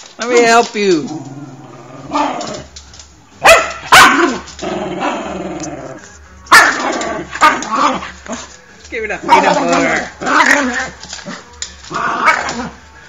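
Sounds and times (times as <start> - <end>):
dog growling: 1.0 - 2.8, 3.9 - 8.5, 9.2 - 13.0
dog barking: 3.4 - 4.5, 6.5 - 8.4, 9.3 - 10.7.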